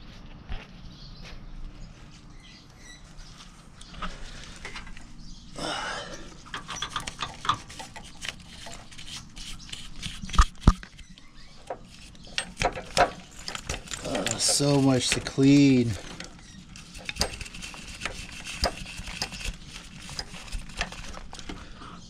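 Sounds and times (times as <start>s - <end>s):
scratchy rustling: 7.4s - 10.4s, 13.2s - 21.5s.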